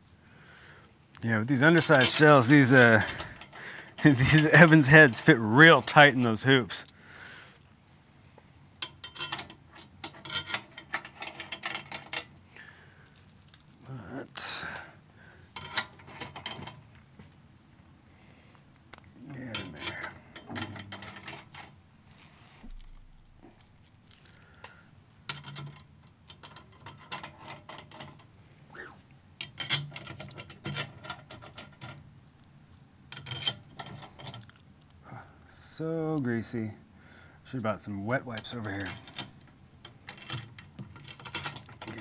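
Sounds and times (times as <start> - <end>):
metal parts clinking: 1.0 - 7.0, 8.8 - 12.4, 13.0 - 14.9, 15.6 - 16.8, 18.5 - 24.7, 25.3 - 28.8, 29.4 - 32.5, 33.1 - 35.0, 38.3 - 42.0
metallic clicking and ratcheting: 1.1 - 6.1, 18.9 - 24.5, 29.4 - 32.5.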